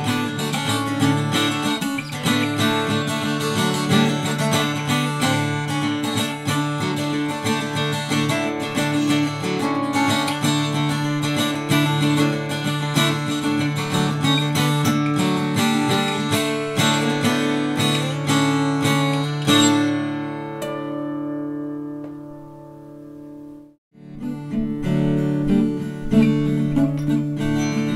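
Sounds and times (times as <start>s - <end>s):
acoustic guitar picked notes: 0.0s - 27.9s
guitar chord ringing: 0.0s - 27.9s.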